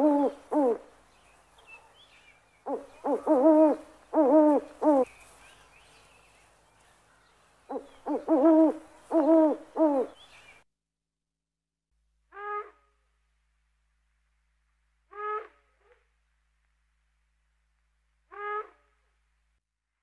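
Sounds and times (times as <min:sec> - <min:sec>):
owl hooting: 0:00.0 - 0:00.9, 0:02.6 - 0:05.1, 0:07.7 - 0:10.3.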